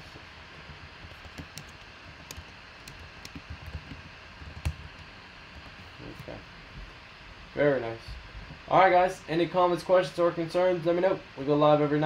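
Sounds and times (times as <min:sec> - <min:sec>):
keyboard typing clicks: 0:01.0 - 0:05.7.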